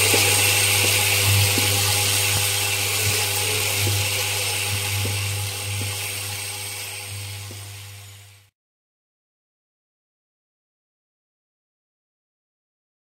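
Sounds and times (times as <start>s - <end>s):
machine humming: 0.0s - 8.5s.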